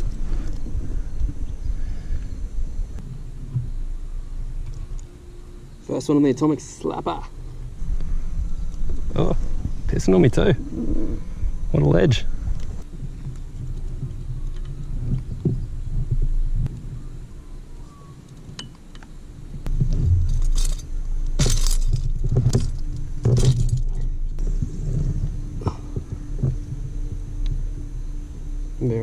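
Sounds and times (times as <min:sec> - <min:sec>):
light metallic clinks: 0:20.2 - 0:24.3.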